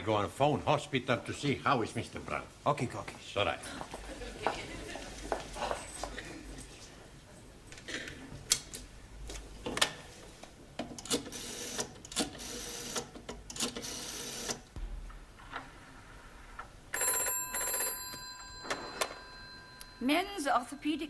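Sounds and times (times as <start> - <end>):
telephone bell ringing: 16.9 - 21.0.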